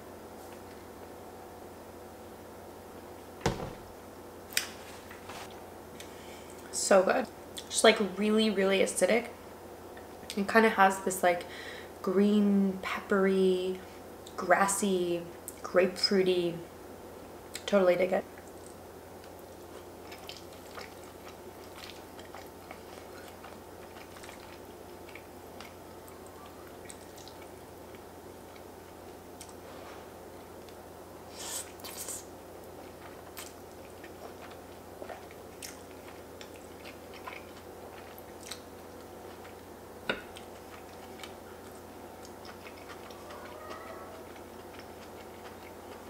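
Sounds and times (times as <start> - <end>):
steady low hum: 0.0 - 46.0
quiet chewing: 18.3 - 30.8, 31.4 - 46.0.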